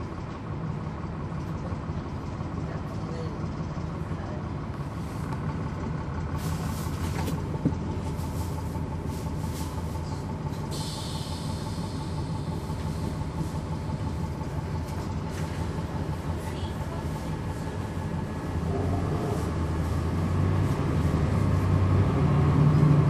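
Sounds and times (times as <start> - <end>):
diesel bus engine running: 0.0 - 23.0
air hiss: 10.7 - 12.3.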